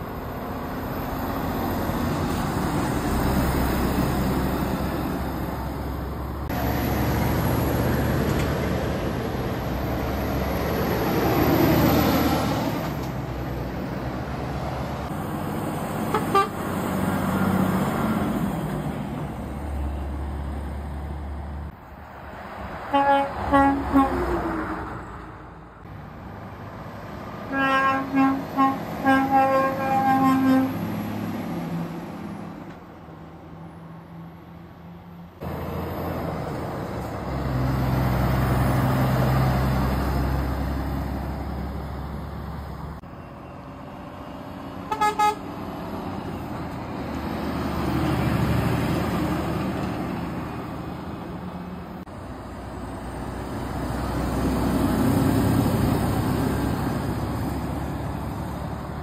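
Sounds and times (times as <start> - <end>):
lorries passing: 0.0 - 59.0
lorry air horn blasts: 16.1 - 16.6, 22.9 - 24.3, 27.5 - 30.8, 44.9 - 45.4.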